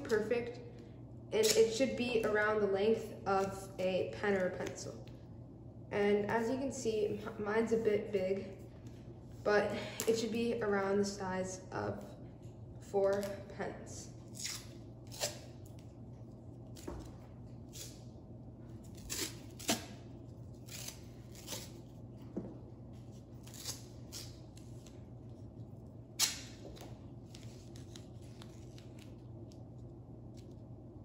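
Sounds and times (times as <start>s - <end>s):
tape ripping and crackling: 14.3s - 15.8s, 18.8s - 22.0s, 23.3s - 25.0s, 26.2s - 29.6s.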